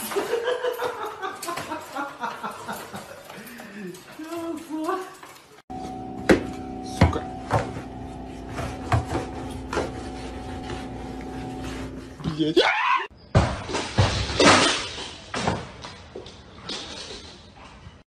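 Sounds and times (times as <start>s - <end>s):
steady hum: 5.7s - 12.3s.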